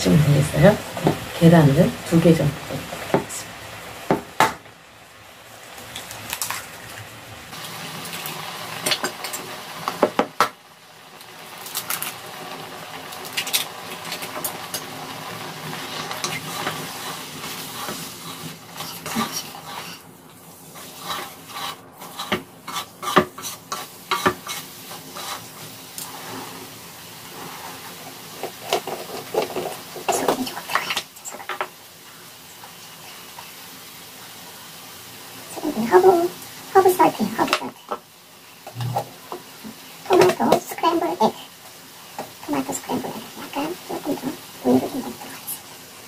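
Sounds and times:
eggs sizzling in a frying pan: 0:00.0 - 0:46.0
chopsticks tapping a pan: 0:21.6 - 0:24.6, 0:38.6 - 0:40.6.

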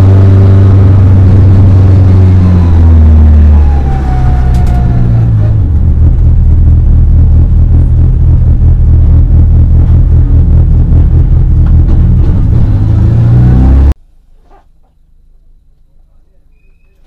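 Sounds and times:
race car engine running hard: 0:00.0 - 0:14.0.

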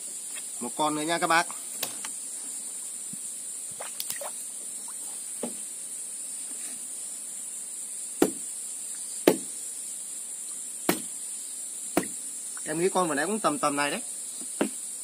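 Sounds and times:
high-pitched insect chorus: 0:00.0 - 0:15.0
sharp loud knocks: 0:08.2 - 0:08.4, 0:09.2 - 0:09.5, 0:10.9 - 0:11.1.

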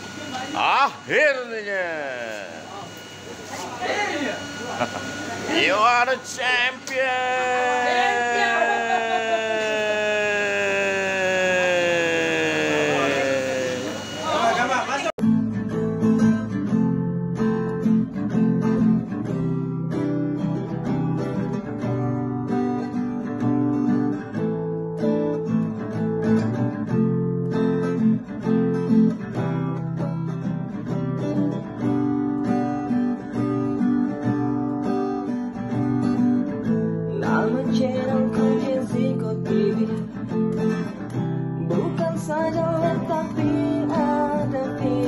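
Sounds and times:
strummed acoustic guitar song: 0:15.2 - 0:45.0.

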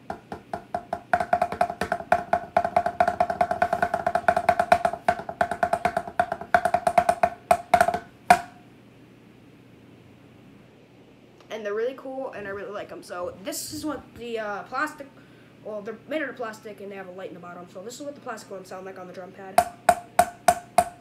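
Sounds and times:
plastic drumsticks drumming: 0:00.0 - 0:08.6, 0:19.6 - 0:21.0.

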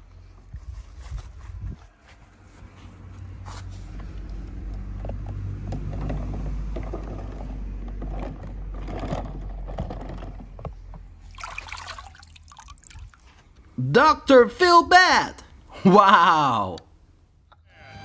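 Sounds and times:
water splash: 0:11.3 - 0:13.3.

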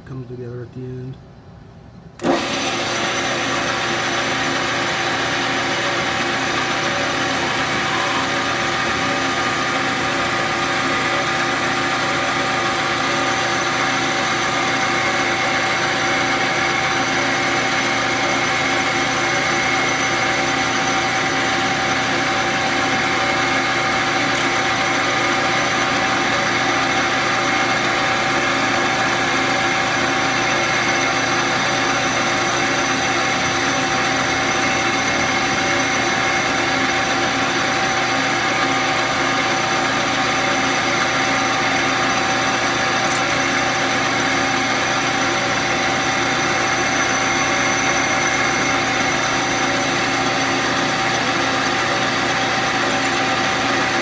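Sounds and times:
drill drilling into bolt: 0:02.2 - 0:25.5, 0:43.0 - 0:44.0, 0:52.6 - 0:54.0
metal lathe whining: 0:02.2 - 0:54.0.

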